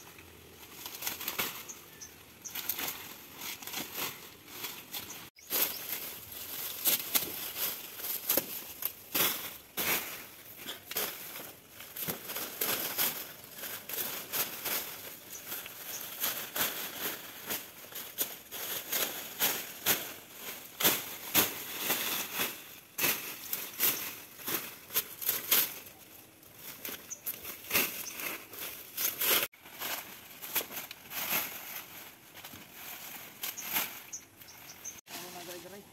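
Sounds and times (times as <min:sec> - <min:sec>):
dry leaves crackling and tearing: 0:00.0 - 0:35.8
machete hacking brush: 0:06.7 - 0:13.3.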